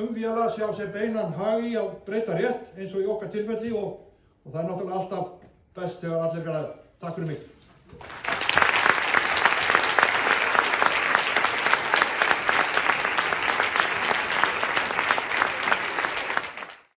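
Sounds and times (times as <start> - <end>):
audience applauding: 8.0 - 16.9.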